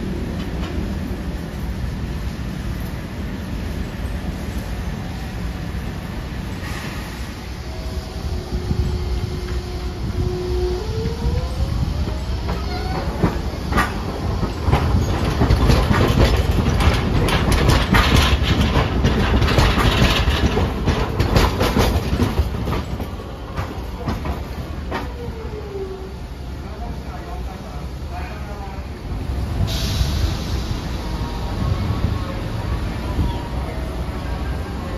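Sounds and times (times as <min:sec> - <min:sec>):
tram motor whine: 0:00.0 - 0:26.7
tram wheels clattering: 0:00.0 - 0:34.9.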